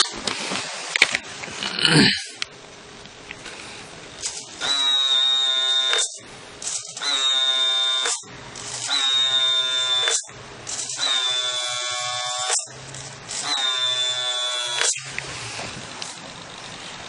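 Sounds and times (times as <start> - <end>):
toy truck buzzing tone: 3.5 - 17.0.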